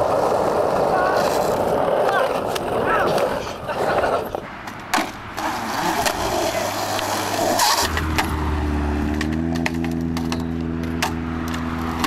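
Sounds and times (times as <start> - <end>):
skateboard wheels rolling on concrete: 0.0 - 12.0
vehicle engine humming: 4.4 - 12.0.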